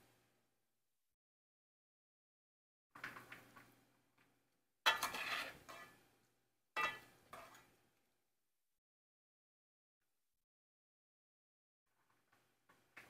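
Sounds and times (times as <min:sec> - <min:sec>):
metal pot and utensils clattering: 0:04.8 - 0:06.1, 0:06.8 - 0:07.8.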